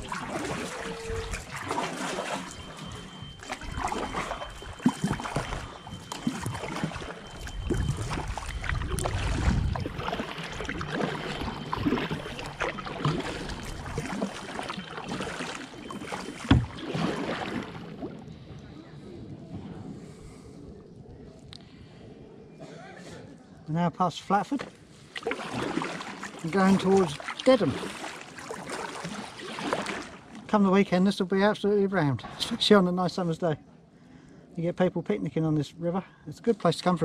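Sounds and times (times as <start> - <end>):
water dripping and trickling: 0.0 - 18.1, 25.2 - 30.6
kayak paddles dipping in water: 0.0 - 18.7, 24.5 - 30.7.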